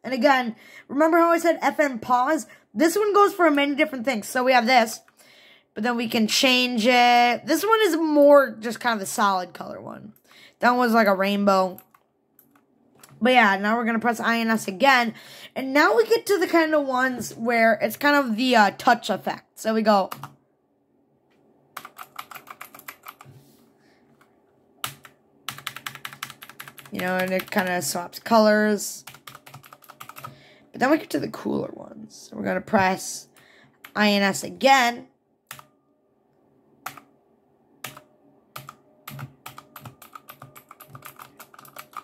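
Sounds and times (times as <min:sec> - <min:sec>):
mechanical keyboard typing: 0:21.8 - 0:23.3, 0:24.8 - 0:27.9, 0:29.0 - 0:30.4, 0:36.8 - 0:37.1, 0:37.8 - 0:42.0.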